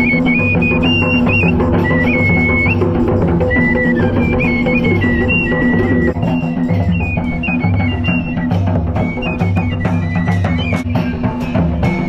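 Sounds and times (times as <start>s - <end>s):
steady drum beats: 0.0s - 12.0s
wooden flute melody: 0.0s - 12.0s.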